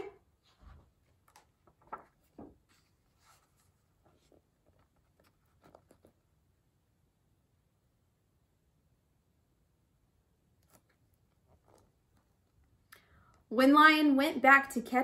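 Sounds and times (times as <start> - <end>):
book pages turning: 0.5 - 6.3, 10.6 - 12.6.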